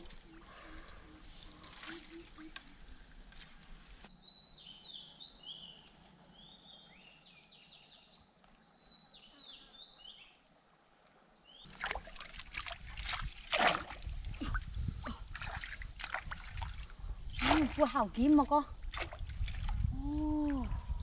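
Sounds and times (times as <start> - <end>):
birds chirping: 0.0 - 10.5
quiet stream: 0.0 - 21.0
pole splashing in water: 11.7 - 14.3, 15.3 - 19.8.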